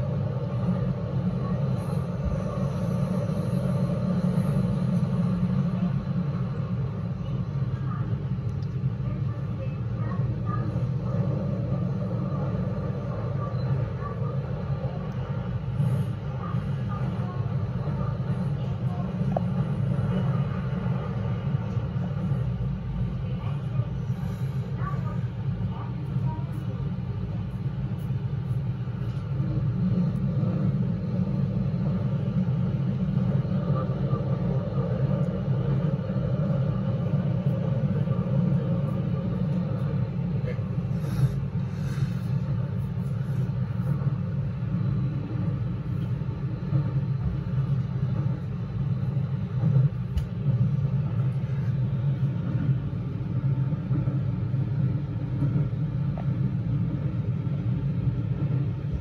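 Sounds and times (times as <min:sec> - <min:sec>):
train rumbling in tunnel: 0:00.0 - 0:59.0.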